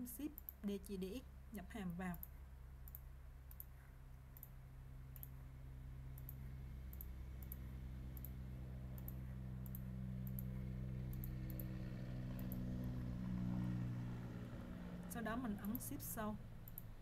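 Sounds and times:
low vehicle engine hum: 0:00.0 - 0:17.0
computer mouse clicking: 0:02.1 - 0:05.4, 0:06.2 - 0:07.6, 0:08.2 - 0:08.4, 0:09.0 - 0:10.5, 0:16.6 - 0:16.9.

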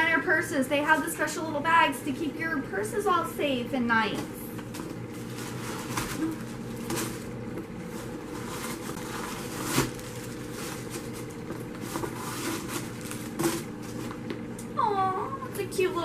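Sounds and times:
packing paper crinkling: 0:04.7 - 0:14.2.

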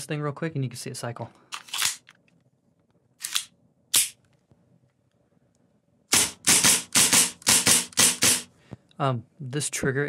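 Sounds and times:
airsoft pistol firing rapidly: 0:06.1 - 0:08.5.

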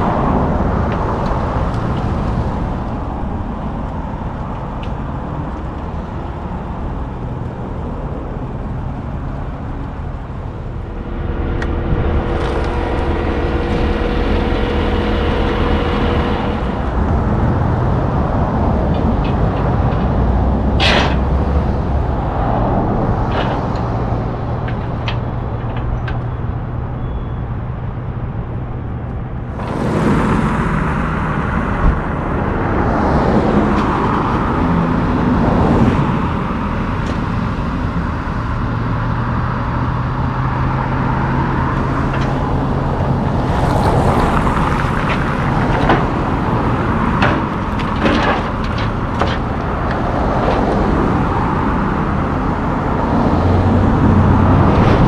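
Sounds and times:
steady whine: 0:00.0 - 0:55.0
diesel truck engine idling: 0:00.8 - 0:35.4.

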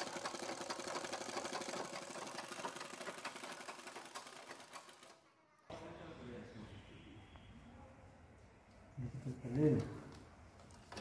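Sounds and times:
leather sewing machine stitching: 0:00.0 - 0:05.3.

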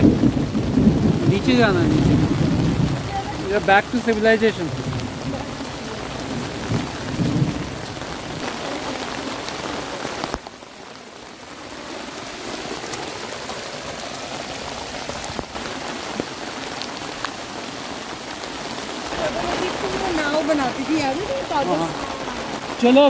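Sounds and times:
heavy rain on umbrella: 0:00.0 - 0:23.0.

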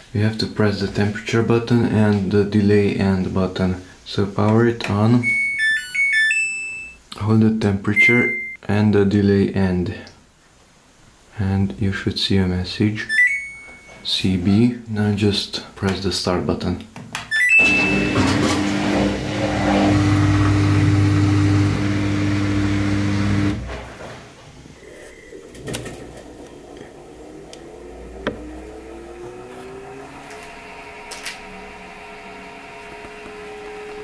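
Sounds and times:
washing machine motor whining: 0:17.4 - 0:23.8, 0:25.4 - 0:34.0
washing machine hum: 0:17.5 - 0:34.0.

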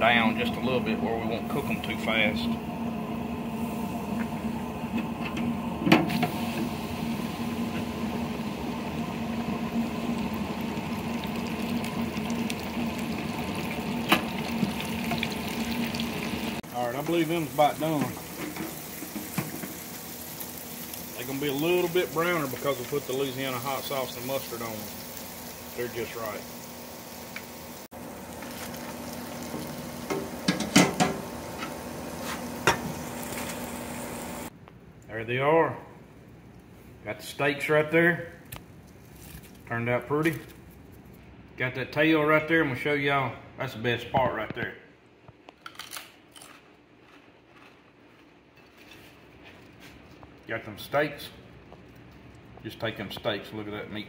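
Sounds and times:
ice cream maker motor hum: 0:00.0 - 0:34.5
fish deep-frying sizzling: 0:05.5 - 0:34.5.

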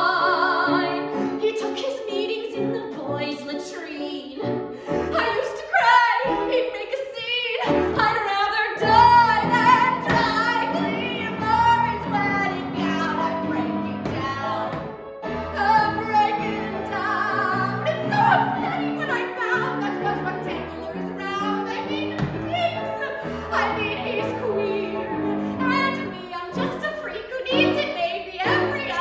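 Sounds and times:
woman singing: 0:00.0 - 0:29.0
instrumental accompaniment: 0:07.6 - 0:29.0.

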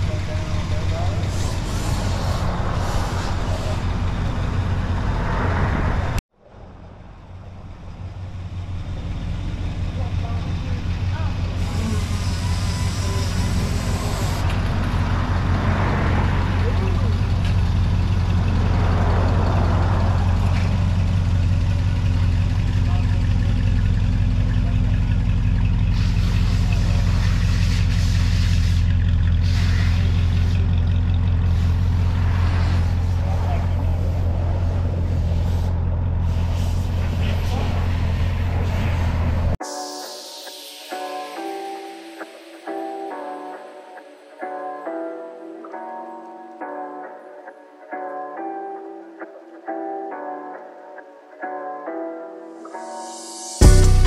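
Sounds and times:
hiss: 0:01.2 - 0:04.1, 0:11.6 - 0:14.5, 0:25.9 - 0:30.7, 0:35.0 - 0:39.1, 0:39.8 - 0:42.2
engine idling: 0:07.0 - 0:15.2, 0:16.4 - 0:32.1.

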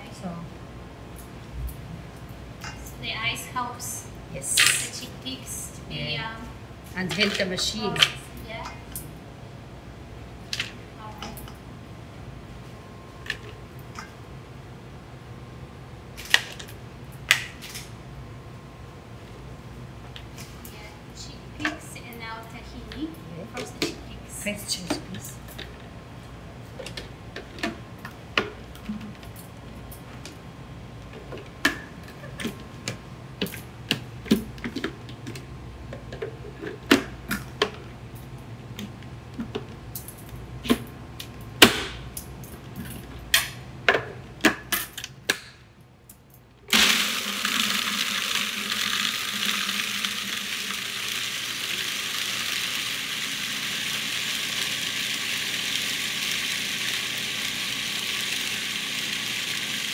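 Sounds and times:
food processor whirring: 0:46.7 - 0:59.9.

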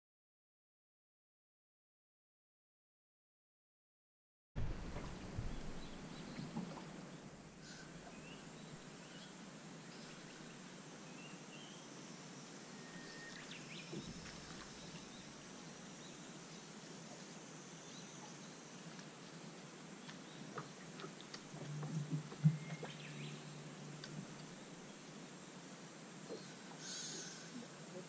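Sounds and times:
low rumble: 0:04.6 - 0:07.6, 0:21.5 - 0:25.0
steady hiss: 0:04.6 - 0:28.0
bird chirps: 0:21.8 - 0:23.6.

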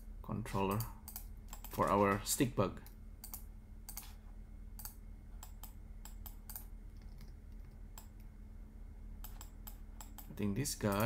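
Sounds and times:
faint low hum: 0:00.0 - 0:11.0
keyboard and mouse clicks: 0:00.7 - 0:02.2, 0:02.8 - 0:04.2, 0:04.8 - 0:08.3, 0:09.2 - 0:11.0.

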